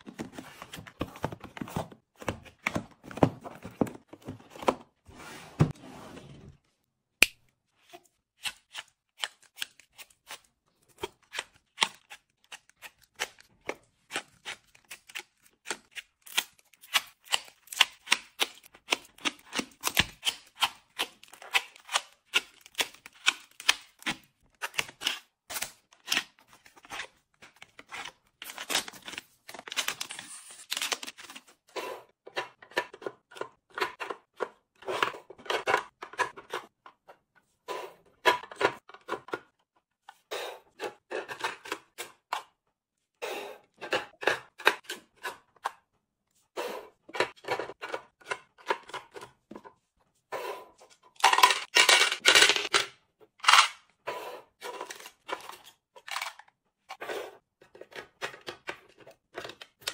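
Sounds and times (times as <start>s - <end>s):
cardboard and plastic tapping: 0.1s - 4.8s.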